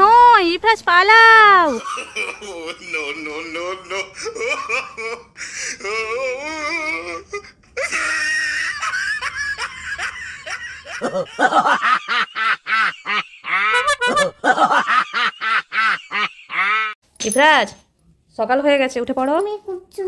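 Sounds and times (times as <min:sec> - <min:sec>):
person laughing: 0:01.7 - 0:17.0.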